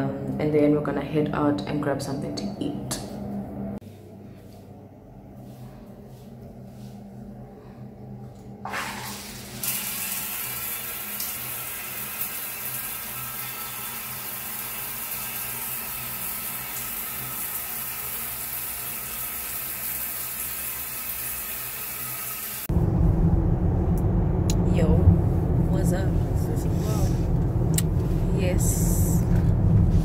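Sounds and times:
shower water hissing: 0:08.6 - 0:22.7.

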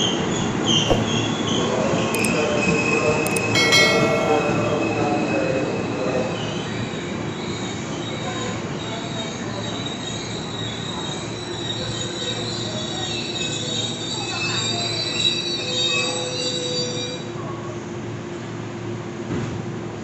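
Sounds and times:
train running noise: 0:02.1 - 0:06.2
short sharp ringing: 0:03.3 - 0:05.2.

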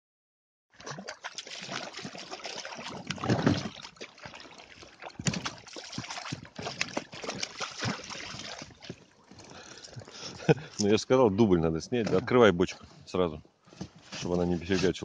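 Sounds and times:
fish thrashing and splashing: 0:00.7 - 0:10.8
net swept through water: 0:00.8 - 0:08.8.

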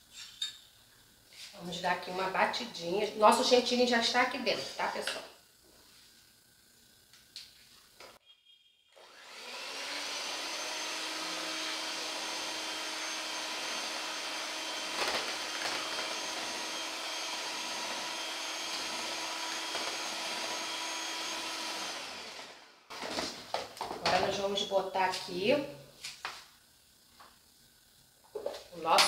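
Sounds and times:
electric hand mixer whipping cream: 0:09.0 - 0:23.2.

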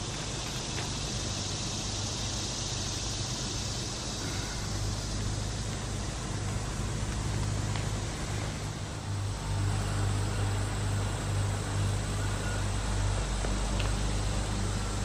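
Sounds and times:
hiss: 0:00.0 - 0:15.0
low steady hum: 0:00.0 - 0:15.0.

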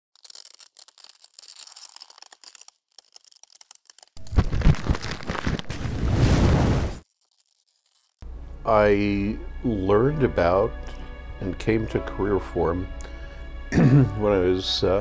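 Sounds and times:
dense rumbling noise: 0:04.2 - 0:07.0
loud crash with deep thuds: 0:05.6 - 0:07.0.

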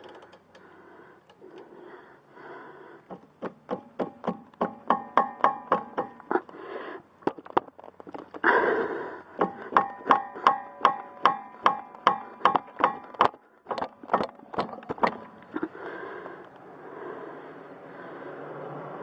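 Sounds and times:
wrench clicking on nut: 0:00.0 - 0:01.4.

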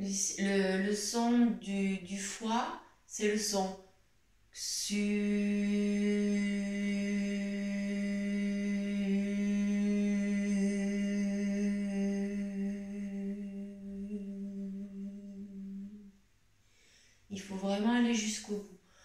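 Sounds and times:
woman humming a long note: 0:04.9 - 0:16.1.

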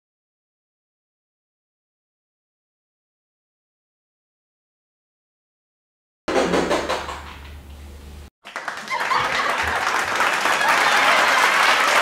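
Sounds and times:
crowd applauding: 0:08.4 - 0:12.0
crowd cheering: 0:08.4 - 0:12.0.

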